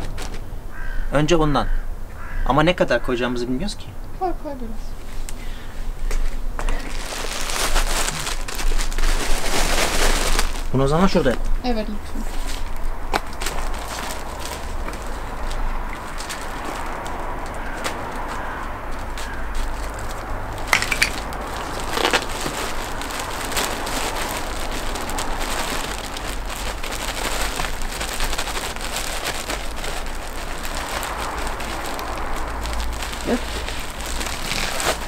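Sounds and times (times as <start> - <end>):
plastic bag crinkling: 0.0 - 0.5, 6.6 - 11.5, 12.2 - 35.0
soil pouring from a bag: 19.8 - 35.0.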